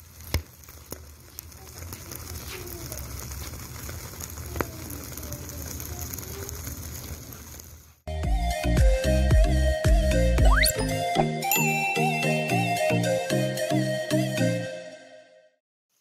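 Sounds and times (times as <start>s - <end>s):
sharp pops: 0.0s - 8.0s
chicken sizzling on a grill: 0.0s - 8.1s.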